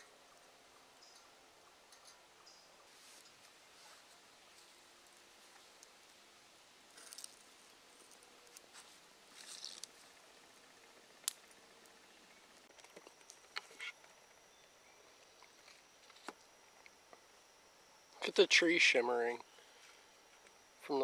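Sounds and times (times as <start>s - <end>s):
faint high steady tone: 0.0s - 21.0s
faint clicks and crackles: 6.8s - 17.3s.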